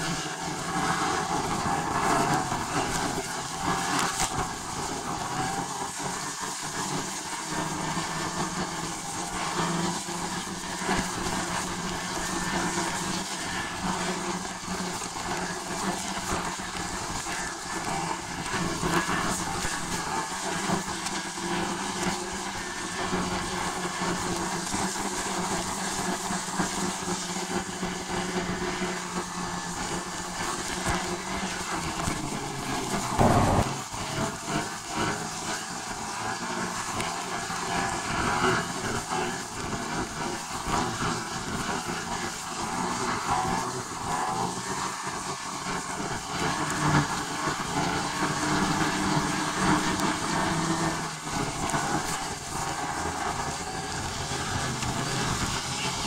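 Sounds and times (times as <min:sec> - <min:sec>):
moving vehicle drone and hiss: 0:00.0 - 0:56.0
loud bump: 0:33.2 - 0:34.2.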